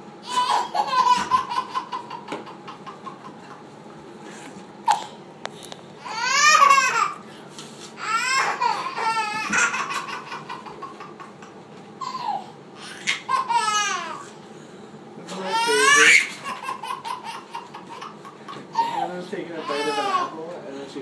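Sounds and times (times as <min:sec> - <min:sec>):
baby girl laughing: 0:00.2 - 0:03.6, 0:06.0 - 0:07.2, 0:08.0 - 0:14.2, 0:15.5 - 0:19.1.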